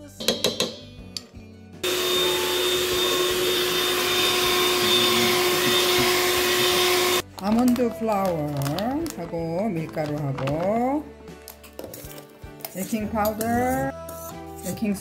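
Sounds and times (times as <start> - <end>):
electric hand mixer whirring: 1.8 - 7.2.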